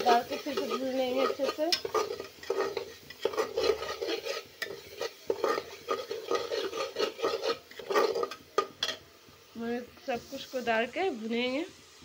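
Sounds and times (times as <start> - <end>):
metal spoon scraping metal pot: 0.0 - 9.0
masala frying in oil: 0.0 - 12.0.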